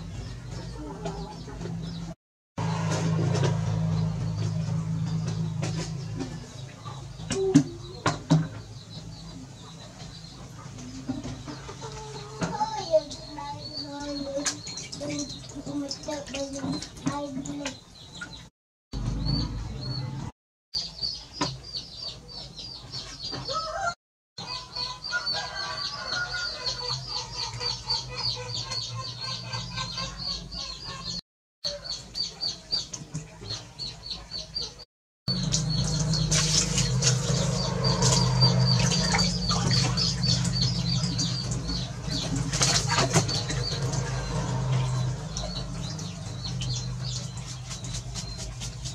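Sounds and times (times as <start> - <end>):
low hum: 35.3 - 48.0.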